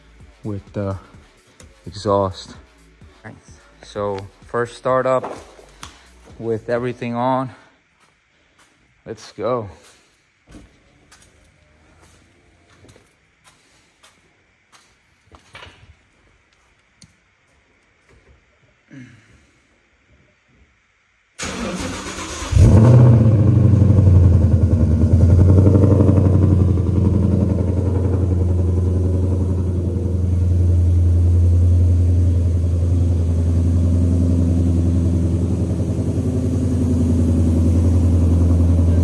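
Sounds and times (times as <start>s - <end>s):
engine cranking: 21.4s - 23.2s
car engine idling: 21.4s - 39.0s.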